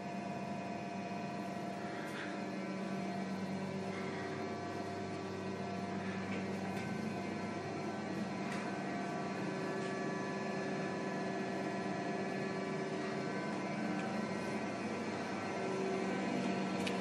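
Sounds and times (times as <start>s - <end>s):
electrical mains hum: 0.0s - 17.0s
faint footsteps: 1.9s - 10.9s.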